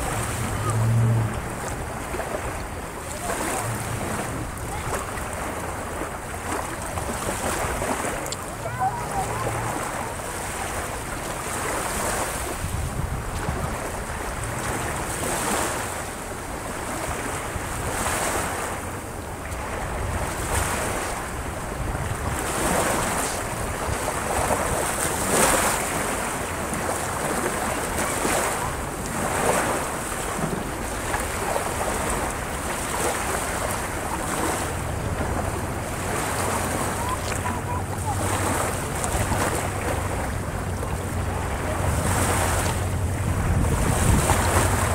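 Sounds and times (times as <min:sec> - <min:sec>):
small waves breaking on shore: 0:00.0 - 0:44.9
wind rumbling on microphone: 0:00.0 - 0:44.9.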